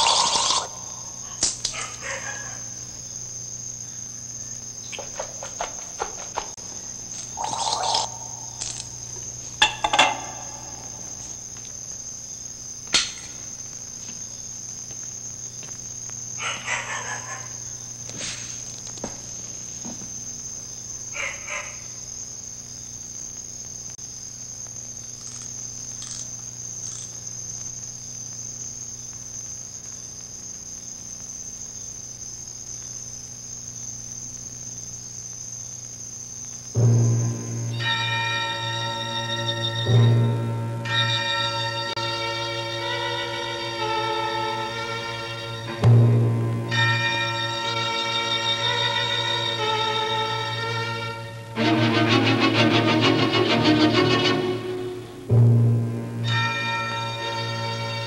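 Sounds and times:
crickets chirring: 0.0 - 58.0
low hum: 6.1 - 12.2, 36.7 - 42.0, 44.9 - 48.0, 51.2 - 58.0.

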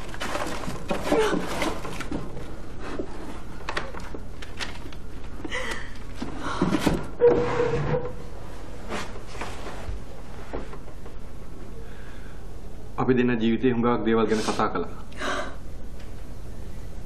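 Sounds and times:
wooden drawer being rummaged: 0.0 - 4.9.

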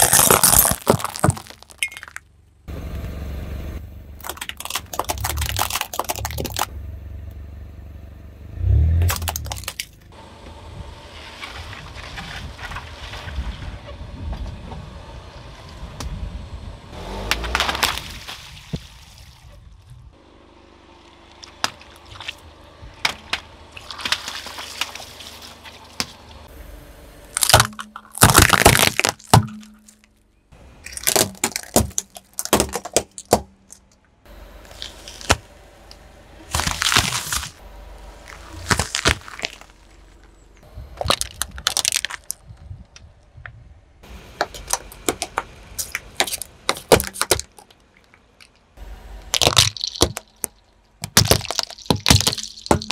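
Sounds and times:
plastic and wood cracking: 0.0 - 2.2, 4.2 - 6.7, 9.1 - 10.0, 27.4 - 30.2, 30.8 - 34.1, 36.5 - 37.6, 38.2 - 40.4, 41.0 - 43.0, 44.4 - 48.7, 49.3 - 52.9
car tyre crushing objects: 0.0 - 3.2, 4.1 - 6.8, 8.6 - 14.0, 17.0 - 19.7, 20.9 - 26.5, 27.2 - 52.9
water balloons bursting: 4.2 - 6.7, 27.3 - 30.0, 49.3 - 52.9.

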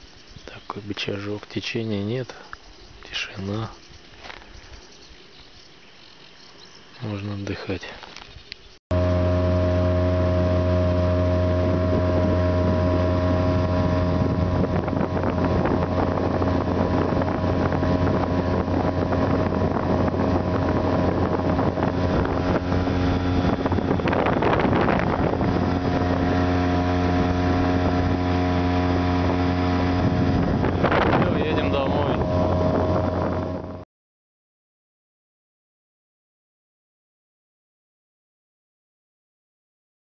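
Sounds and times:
wind on microphone: 8.4 - 33.8
outboard motor running: 8.9 - 33.8
water rushing past hull: 8.9 - 33.8.

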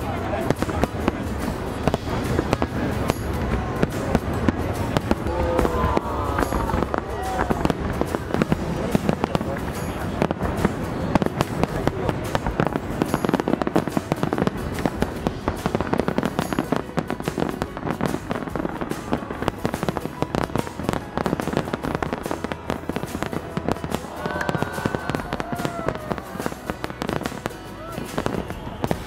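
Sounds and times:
fireworks bangs and crackles: 0.0 - 29.0.

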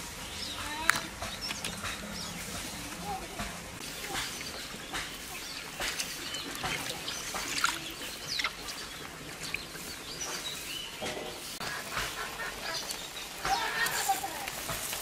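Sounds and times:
birds chirping: 0.0 - 15.0
hands splashing in water: 5.1 - 9.9.

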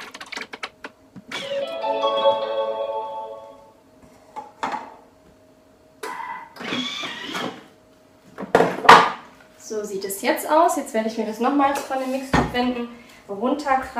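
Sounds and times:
electronic melody of rising notes: 1.5 - 3.8.

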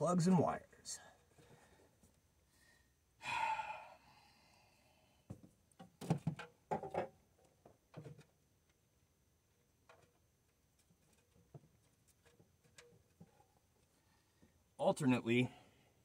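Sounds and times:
person sighing: 3.2 - 5.0.

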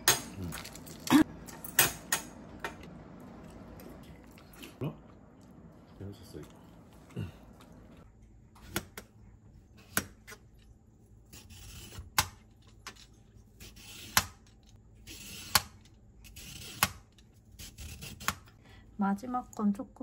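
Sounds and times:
peeler scraping cucumber: 11.3 - 18.6.

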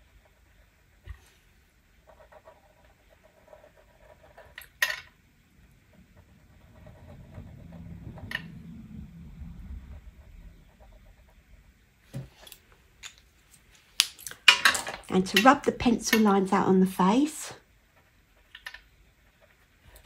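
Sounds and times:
pen scratching on paper: 2.0 - 4.6, 5.9 - 8.1, 9.9 - 11.4
faint low rumble: 5.2 - 12.1.

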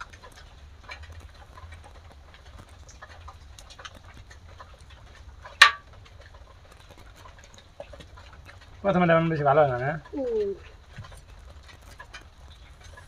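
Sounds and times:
cooking fire crackling: 0.0 - 13.0.

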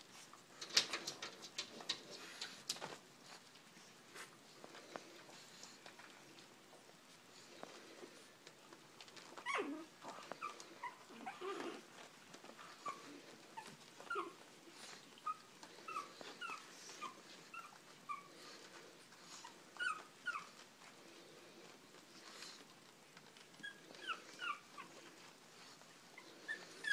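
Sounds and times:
puppies whimpering: 9.1 - 20.9, 23.4 - 26.9.

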